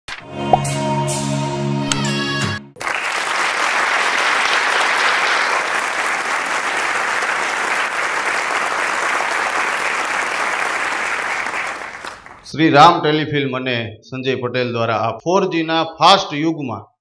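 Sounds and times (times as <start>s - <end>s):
audience applauding: 2.8s - 12.5s.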